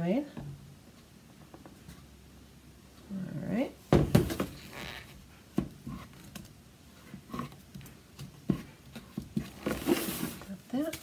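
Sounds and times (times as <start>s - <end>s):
wooden stick stirring batter: 5.5s - 11.0s.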